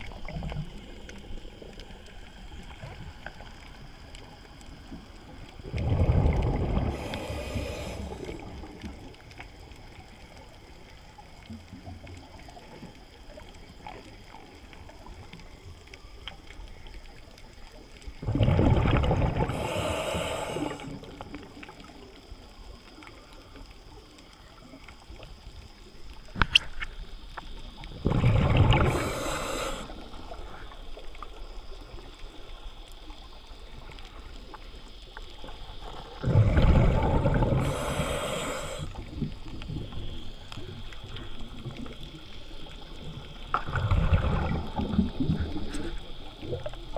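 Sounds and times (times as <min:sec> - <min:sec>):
faint steady hiss: 0:00.0 - 0:46.9
exhaled bubbles rushing: 0:05.6 - 0:09.2, 0:18.1 - 0:21.5, 0:27.9 - 0:30.3, 0:36.0 - 0:40.1, 0:43.1 - 0:46.9.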